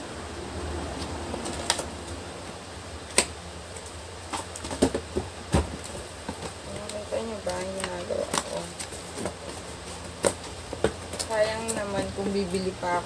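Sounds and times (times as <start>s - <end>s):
electric fan humming: 0.0s - 13.0s
cardboard box clicks and knocks: 4.2s - 12.1s.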